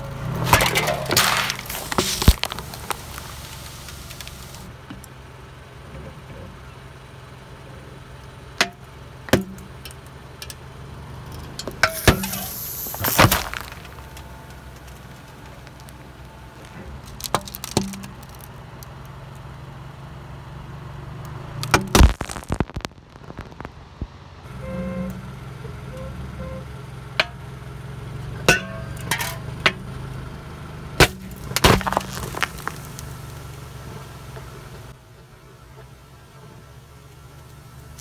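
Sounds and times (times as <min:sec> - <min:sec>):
car engine running slowly: 0:00.0 - 0:38.0
tyre crushing cans and bottles: 0:00.3 - 0:04.6, 0:11.8 - 0:14.2, 0:17.0 - 0:18.5, 0:31.0 - 0:33.1
pop with hissing spray: 0:01.1 - 0:04.7, 0:11.8 - 0:14.0.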